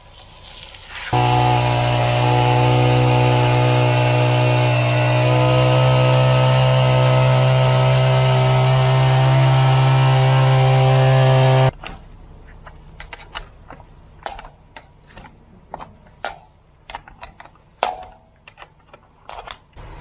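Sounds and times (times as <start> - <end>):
small gas engine running: 1.1 - 11.7.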